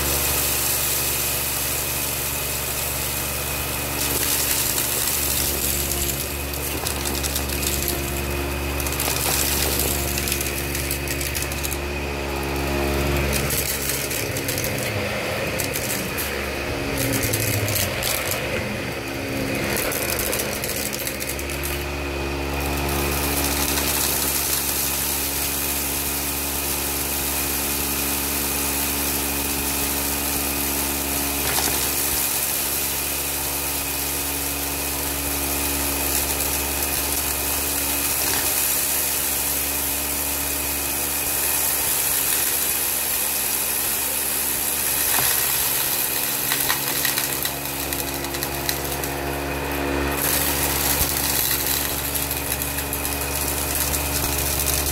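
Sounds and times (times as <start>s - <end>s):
vacuum cleaner running: 0.0s - 54.9s
debris clicking and rattling: 4.0s - 11.8s, 13.1s - 16.4s, 17.0s - 18.6s, 19.7s - 21.8s, 31.3s - 32.6s, 44.6s - 49.2s, 50.2s - 54.9s.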